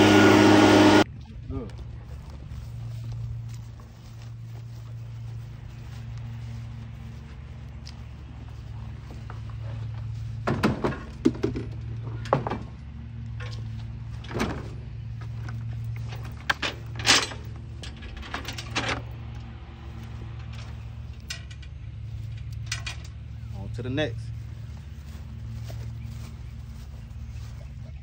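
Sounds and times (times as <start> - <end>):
low engine hum: 0.0 - 28.0
metal clanks: 16.0 - 19.1.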